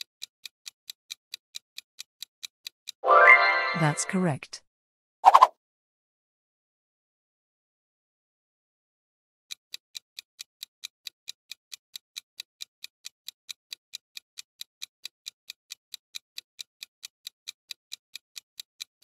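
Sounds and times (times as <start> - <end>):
clock-like ticking: 0.0 - 3.0, 9.5 - 19.0.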